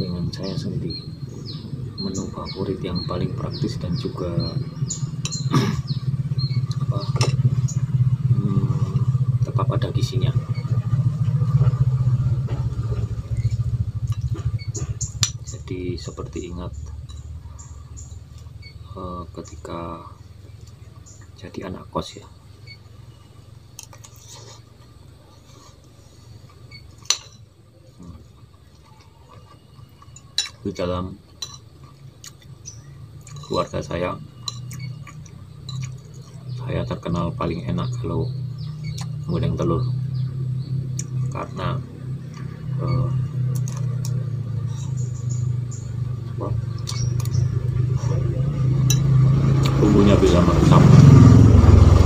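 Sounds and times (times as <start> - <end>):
low mechanical hum: 0.0 - 52.0
metal spoon clinking on plate: 30.0 - 30.6, 31.4 - 31.7.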